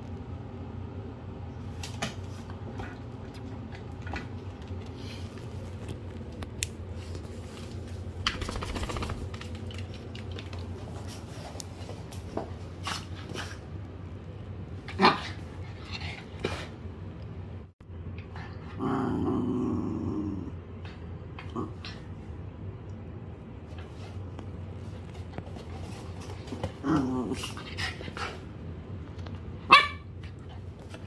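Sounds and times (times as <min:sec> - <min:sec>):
small dog playing: 0:23.7 - 0:29.2
scuffles: 0:23.8 - 0:28.1
dog yipping: 0:29.7 - 0:30.1.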